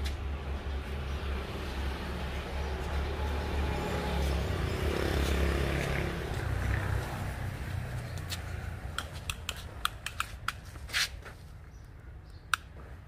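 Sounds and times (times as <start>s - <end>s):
tape measure clicks: 8.9s - 11.2s.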